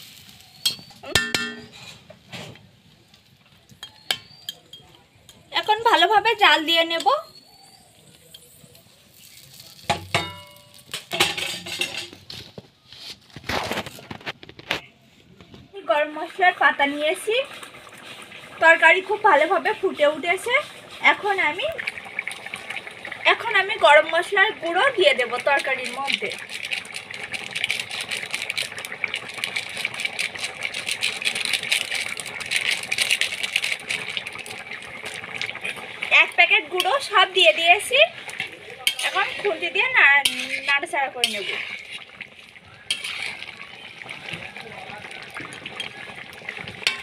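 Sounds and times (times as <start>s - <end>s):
curry boiling with bursting bubbles: 0.0s - 47.0s
firewood clinks and scrapes: 0.4s - 5.5s, 7.6s - 15.7s, 36.8s - 44.6s, 45.3s - 47.0s.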